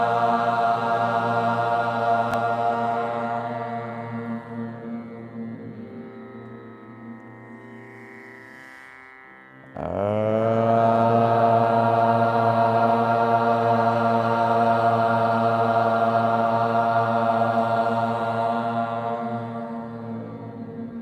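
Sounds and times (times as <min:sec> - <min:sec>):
group chanting in unison: 0:00.0 - 0:03.8, 0:10.4 - 0:20.2.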